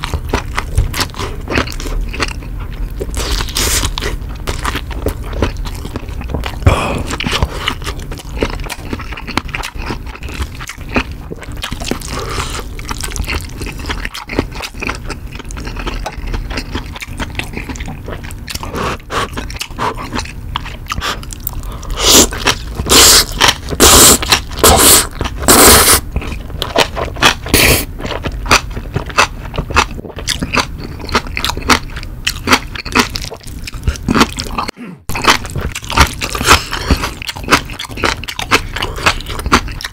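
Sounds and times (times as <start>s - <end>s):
wet chewing: 0.0s - 39.9s
loud slurping: 22.0s - 26.0s.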